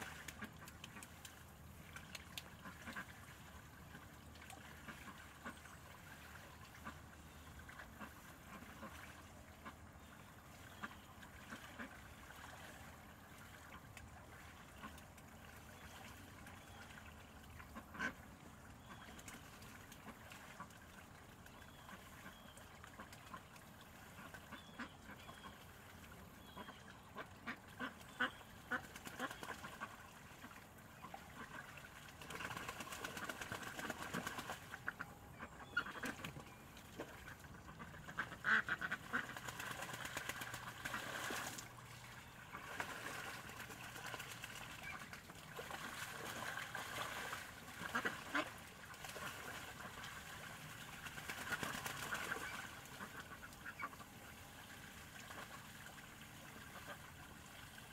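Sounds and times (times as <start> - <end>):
ducks splashing in water: 0.0 - 57.9
ducks quacking: 17.7 - 18.2, 24.1 - 25.6, 26.4 - 50.1.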